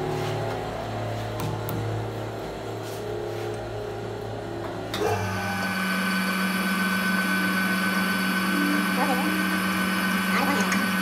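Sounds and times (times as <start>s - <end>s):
metal lathe humming and whining: 4.9s - 11.0s.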